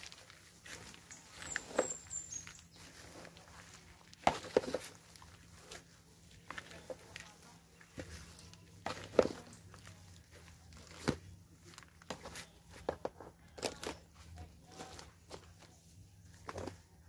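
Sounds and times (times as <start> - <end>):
trowel scraping soil: 0.0 - 11.3
soil trickling: 0.0 - 12.8.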